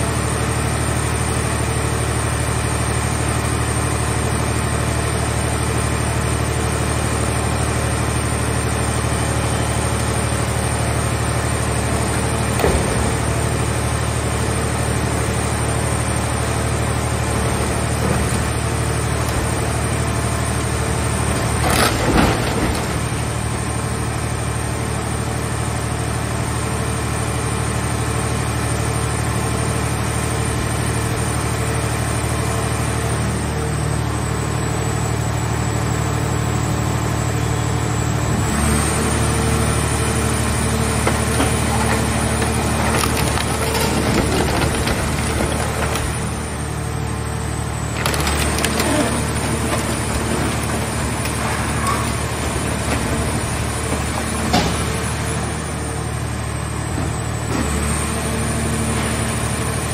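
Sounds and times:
car baler machine drone: 0.0 - 59.9
loud metal crunch: 40.8 - 46.8, 47.8 - 55.6.

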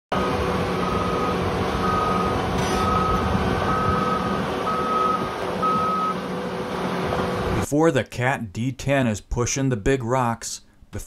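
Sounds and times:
machine alarm beeping: 0.1 - 6.2
diesel engine running: 0.1 - 7.7.

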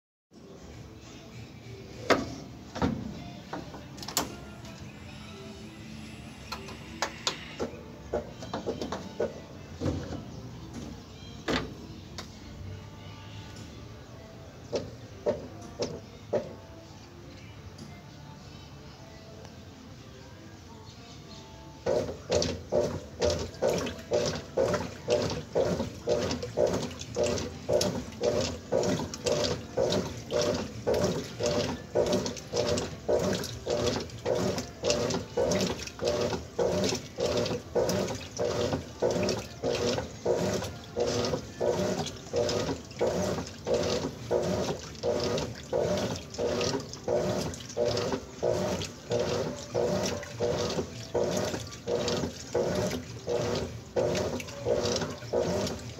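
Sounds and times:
washing machine agitator whirring: 21.8 - 55.9
water and clothes sloshing: 21.9 - 55.9.

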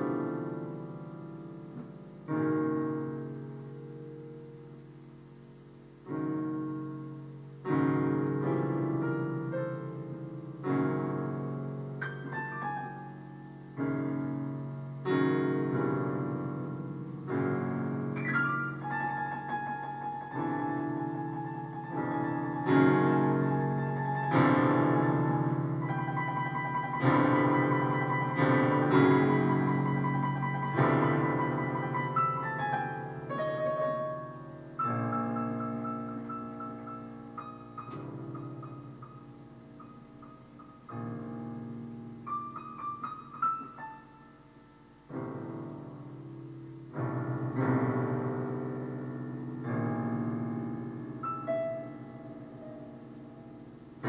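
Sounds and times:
piano chords: 0.0 - 54.0.

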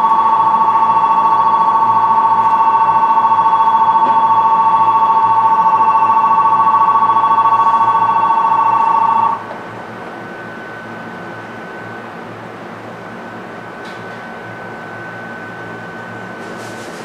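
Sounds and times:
platform bell ringing: 0.0 - 9.4.

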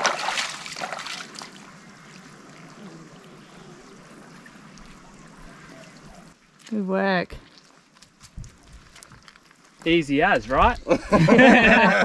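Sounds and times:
net splashing through water: 0.0 - 3.0
trickling water hiss: 0.0 - 11.9.

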